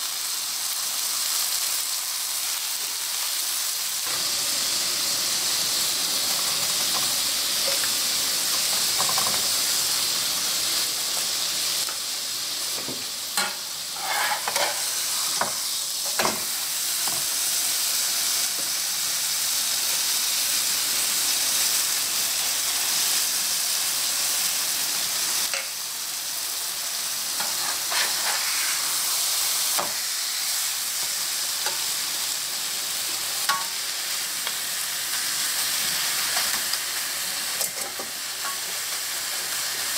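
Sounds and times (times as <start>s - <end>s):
fish sizzling in oil: 0.0s - 39.9s
spoon scraping pan: 13.4s - 15.5s, 27.4s - 28.7s.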